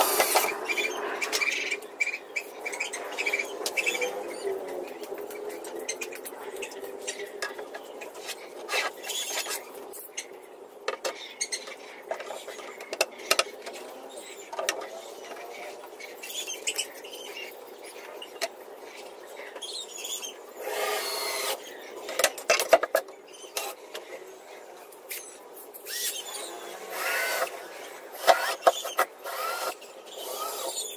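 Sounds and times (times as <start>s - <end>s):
cordless drill driving screws: 26.9s - 27.5s, 28.2s - 30.8s.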